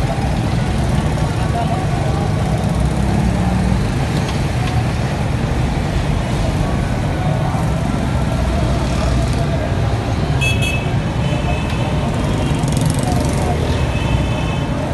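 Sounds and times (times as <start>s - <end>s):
street traffic rumble: 0.0s - 14.9s.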